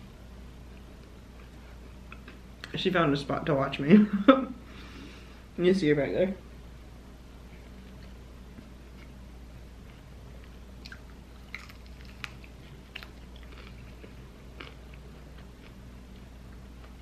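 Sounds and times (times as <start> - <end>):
person chewing with crunches: 9.8 - 17.0.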